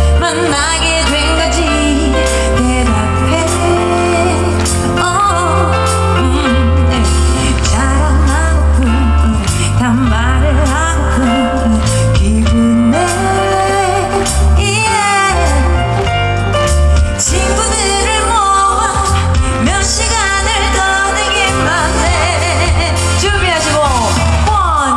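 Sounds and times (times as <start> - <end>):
instrumental backing with heavy bass: 0.0 - 24.9
woman singing pop song: 0.0 - 24.9.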